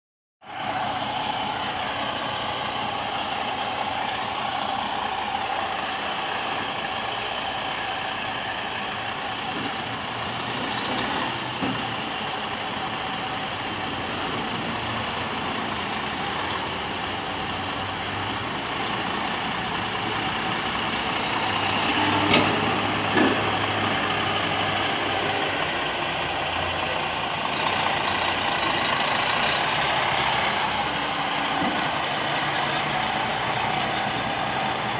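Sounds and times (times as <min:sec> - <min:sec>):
diesel truck engine running: 0:00.4 - 0:34.9.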